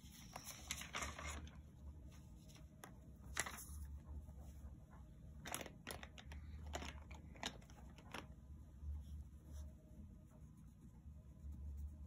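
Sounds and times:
paper and plastic rustling: 0.0 - 3.8, 5.4 - 8.4.

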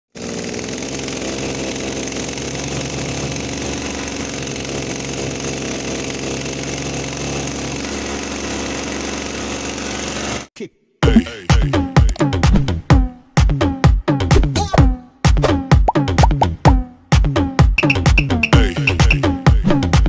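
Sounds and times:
hedge trimmer engine running: 0.1 - 10.5, 17.8 - 19.4.

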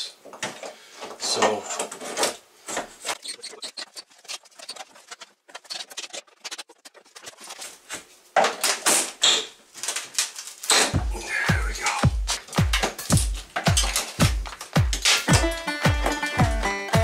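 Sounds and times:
wood scraping and cracking: 0.4 - 16.3
background music with beat: 11.0 - 17.0.

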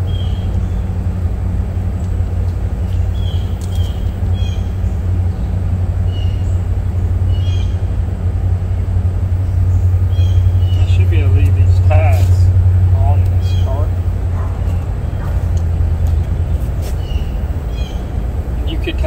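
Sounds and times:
bird chirping: 0.0 - 1.0, 2.8 - 8.0, 9.3 - 12.2, 13.0 - 19.0
low motor hum: 0.0 - 19.0.

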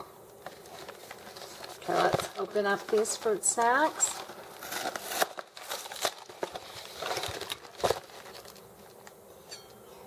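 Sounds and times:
cardboard rustling: 0.4 - 8.6
cardboard box tearing open: 4.2 - 8.6.

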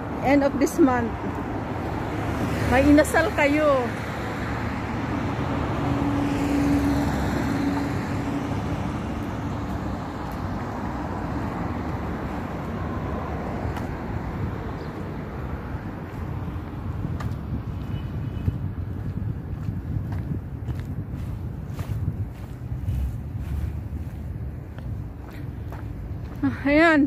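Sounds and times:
traffic hum: 0.0 - 27.0
car passing by: 1.0 - 18.4.

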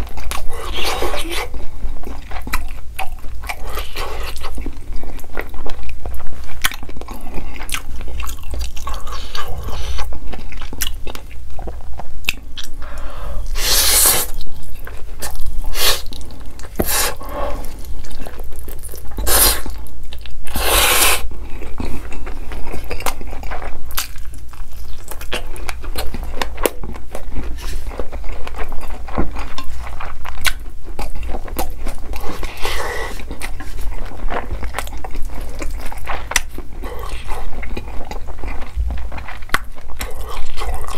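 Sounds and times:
wet chewing and mouth smacks: 0.0 - 40.9
slurping noodles: 13.6 - 14.4, 20.5 - 21.2.

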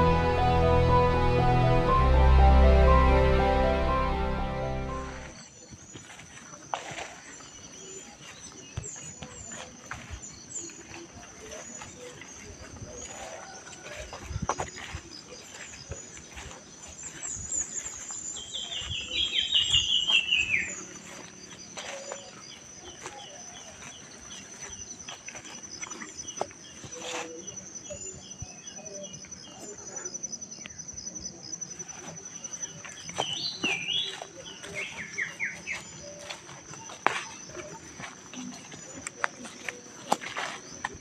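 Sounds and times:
high-pitched buzz: 0.0 - 5.4
birds calling and singing: 5.1 - 41.0.

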